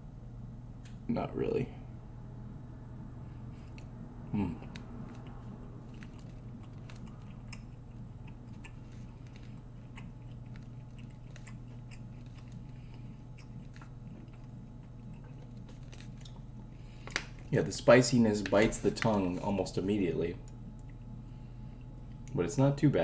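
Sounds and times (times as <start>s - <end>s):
steady low hum: 0.0s - 23.0s
person chewing jerky: 3.6s - 17.6s.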